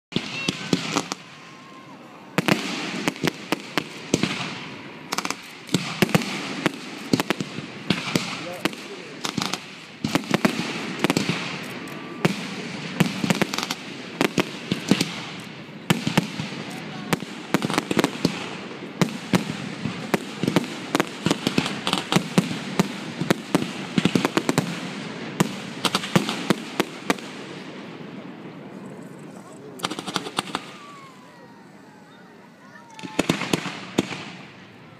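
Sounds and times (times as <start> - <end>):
fireworks bangs: 0.1 - 34.9
fireworks hiss: 0.2 - 27.9, 28.9 - 34.6
firework shells bursting: 2.4 - 12.1, 29.8 - 31.3.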